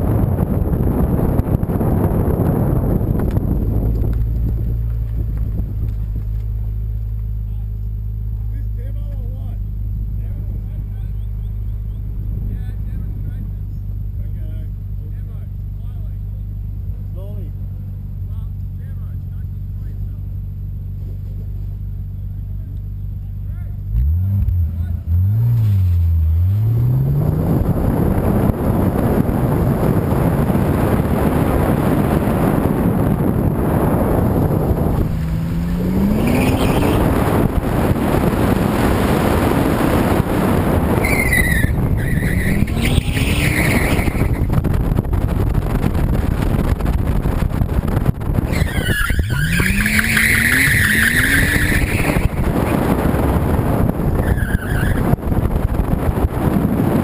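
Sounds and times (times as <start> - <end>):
car engine revving: 0.0 - 57.0
tyres squealing: 35.6 - 37.2, 41.0 - 44.5, 48.5 - 52.8, 54.2 - 55.0.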